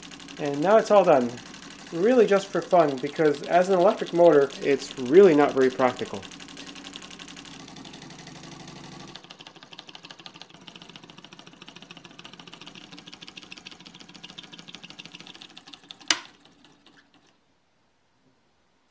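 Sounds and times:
solenoid engine clattering: 0:00.0 - 0:17.4.

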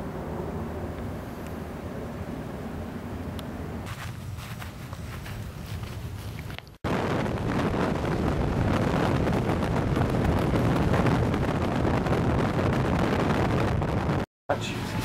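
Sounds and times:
faint outdoor ambience: 0:00.0 - 0:06.9
car road noise: 0:00.0 - 0:15.0
wind rushing over microphone: 0:03.4 - 0:15.0.

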